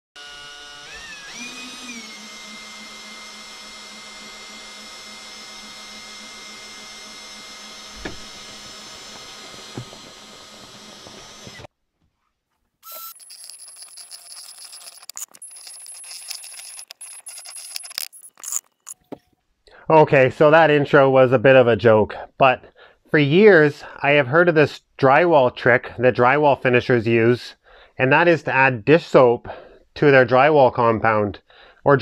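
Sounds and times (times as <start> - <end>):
electric drill mixing: 0.2 - 11.7, 12.8 - 19.0.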